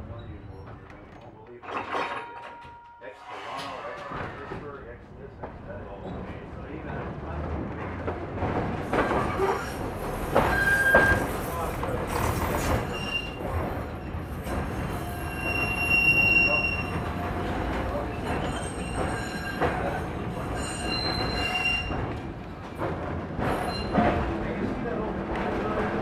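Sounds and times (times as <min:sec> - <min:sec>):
streetcar running on rails: 0:02.8 - 0:26.0
wheels squealing on track: 0:09.2 - 0:11.4, 0:15.0 - 0:17.1, 0:18.2 - 0:22.0.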